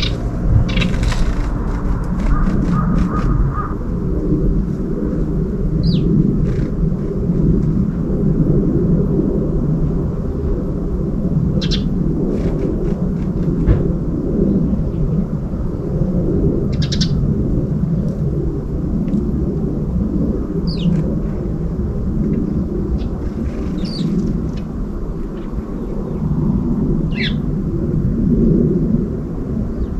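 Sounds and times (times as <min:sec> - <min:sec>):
bird chirps: 0:00.0 - 0:01.0, 0:23.8 - 0:24.1
low outdoor rumble: 0:00.0 - 0:29.9.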